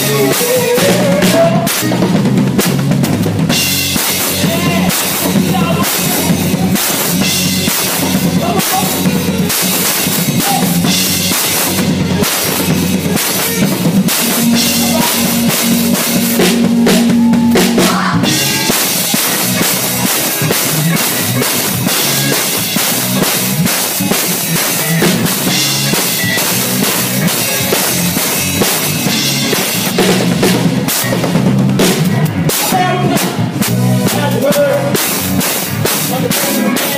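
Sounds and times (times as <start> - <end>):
band music: 0.0 - 36.9
drum kit played hard: 0.0 - 36.9
cymbals ringing: 10.8 - 22.8
held low instrument note: 12.7 - 19.6.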